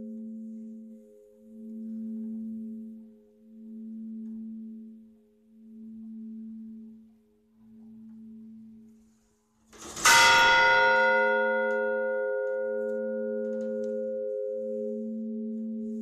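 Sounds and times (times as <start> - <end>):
church bell humming: 10.0 - 16.0.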